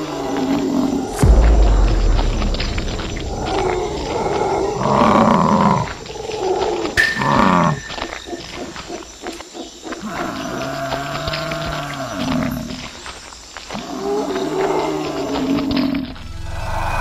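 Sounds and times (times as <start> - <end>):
animal roar: 3.3 - 8.5.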